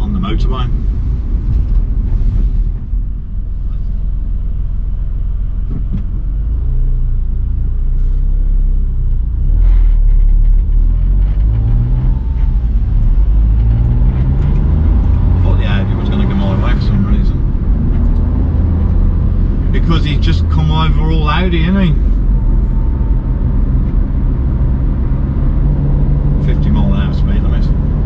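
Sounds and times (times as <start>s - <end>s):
car engine accelerating: 0.0s - 28.0s
road and tyre noise: 0.0s - 28.0s.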